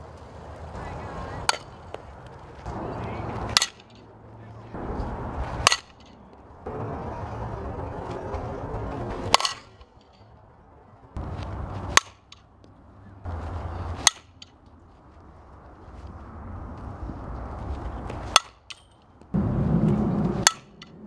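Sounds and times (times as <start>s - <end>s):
low outdoor rumble: 0.0s - 21.0s
bat hitting softball: 1.4s - 4.1s, 4.9s - 6.4s, 9.0s - 10.2s, 11.8s - 12.5s, 13.9s - 14.6s, 18.1s - 19.0s, 19.9s - 21.0s.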